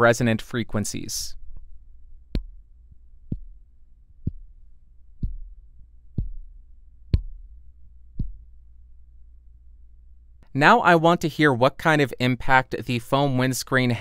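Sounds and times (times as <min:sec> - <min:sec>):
faint low hum: 0:00.0 - 0:11.0
fingertip tapping on microphone: 0:02.3 - 0:02.6, 0:03.2 - 0:03.6, 0:04.2 - 0:04.5, 0:05.2 - 0:05.5, 0:06.1 - 0:06.5, 0:07.1 - 0:07.5, 0:08.1 - 0:08.4.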